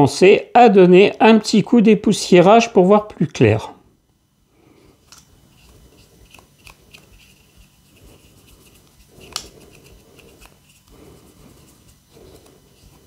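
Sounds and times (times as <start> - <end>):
paintbrush sweeping dust: 7.0 - 13.0.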